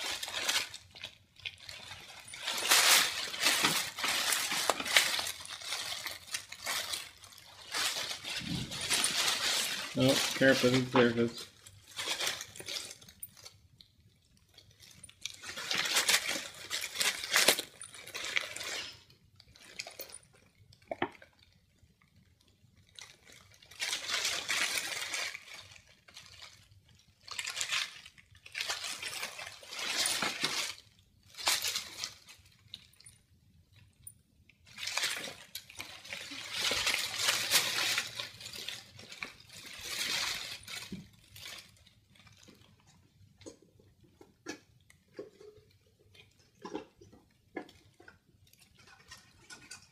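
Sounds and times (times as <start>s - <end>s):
cellophane and foil crinkling: 0.0s - 49.9s.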